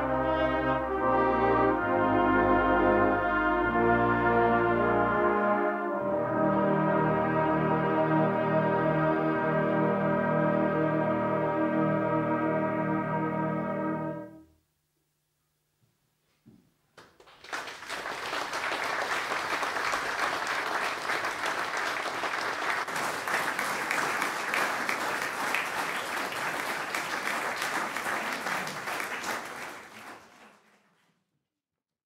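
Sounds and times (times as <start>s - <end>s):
audience applauding: 17.0s - 31.3s.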